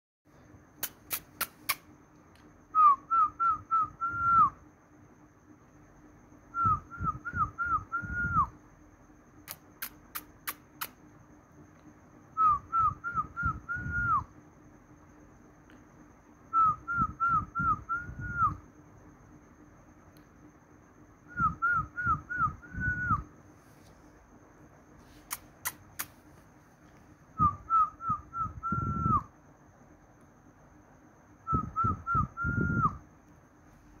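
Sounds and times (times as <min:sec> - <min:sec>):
sharp clicks: 0:00.8 - 0:02.5, 0:09.4 - 0:11.0, 0:25.2 - 0:26.3
whistled phrase: 0:02.8 - 0:04.6, 0:21.3 - 0:23.3, 0:27.4 - 0:29.3, 0:31.4 - 0:33.0.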